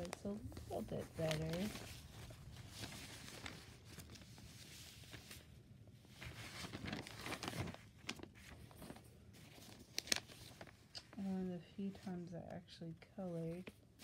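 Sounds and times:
paper sheets rustling: 0.0 - 11.2.

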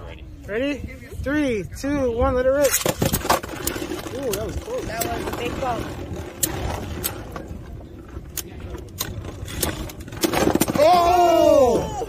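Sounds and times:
person exclaiming oh: 10.8 - 12.0.

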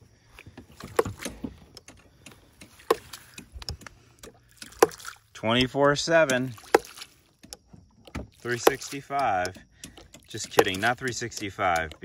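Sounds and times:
ram pump valve knocking: 0.8 - 12.0.

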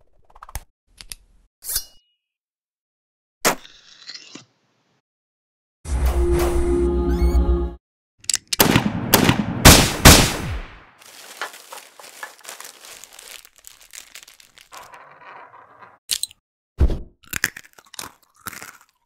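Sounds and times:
tissue paper crinkling: 11.0 - 14.9.

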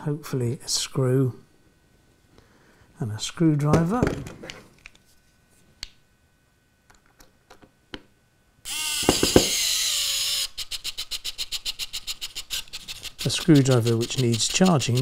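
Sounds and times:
electric screwdriver motor whining: 8.7 - 15.0.

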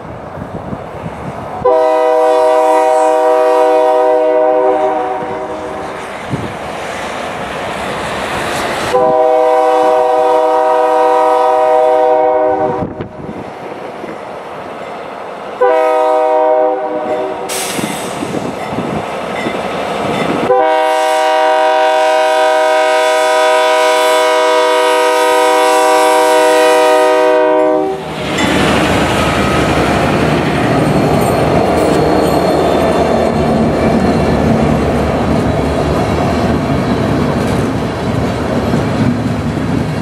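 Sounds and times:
freight train passing on rails: 0.0 - 40.0
locomotive horn blasts: 1.6 - 6.0, 8.9 - 13.2, 15.6 - 17.6, 20.5 - 28.2.

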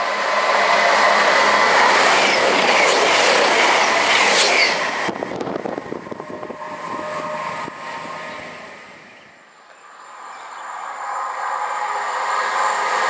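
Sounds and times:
train rumble with rail clicks: 0.0 - 9.0
train passing at speed: 0.0 - 13.0.

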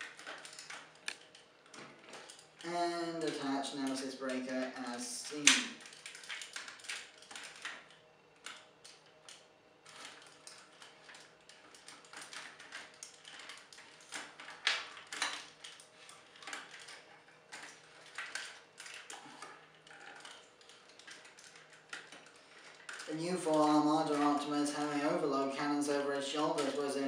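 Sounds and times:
plastic action figure parts clicking: 2.3 - 7.8.

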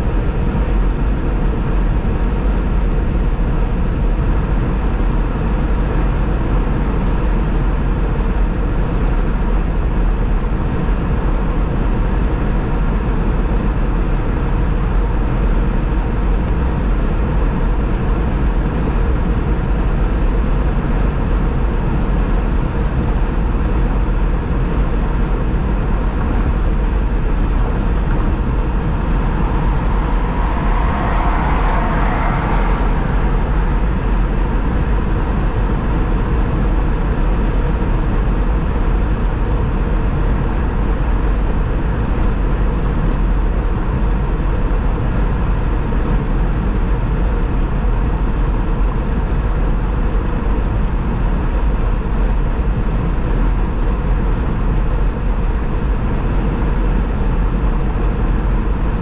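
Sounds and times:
car road and tyre noise: 0.0 - 59.0
faint steady hum: 0.0 - 59.0
brighter swell of noise: 25.8 - 38.0.

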